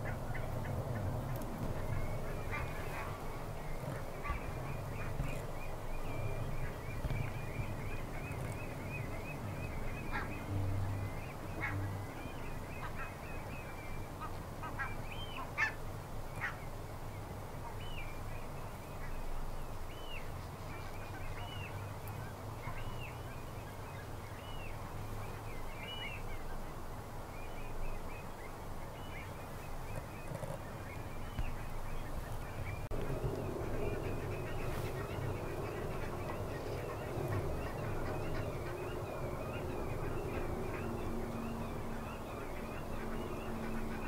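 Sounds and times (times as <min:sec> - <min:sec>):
geese calling in a flock: 0:00.0 - 0:13.6, 0:14.2 - 0:15.8, 0:32.9 - 0:44.0
steady low rumble: 0:30.6 - 0:44.0.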